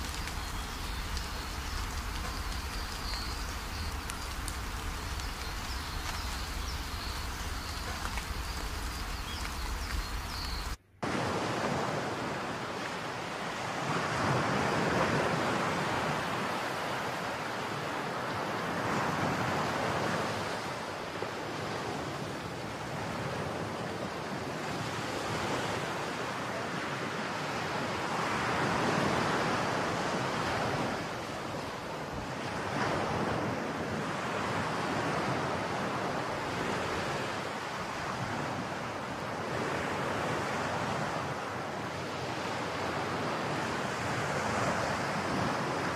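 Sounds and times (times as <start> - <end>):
wind buffeting microphone: 0.0 - 12.4
heavy surf waves breaking: 0.0 - 45.9.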